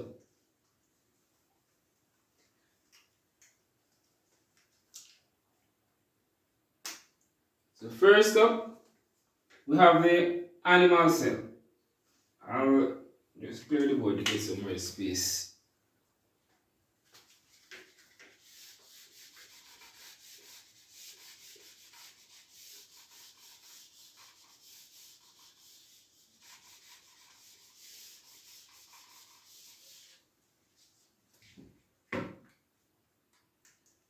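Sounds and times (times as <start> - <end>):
eraser rubbing on whiteboard: 17.2 - 30.3.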